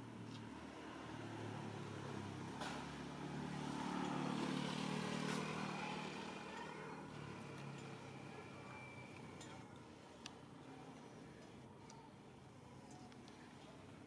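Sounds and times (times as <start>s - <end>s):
vehicle engine passing by: 0.5s - 8.3s.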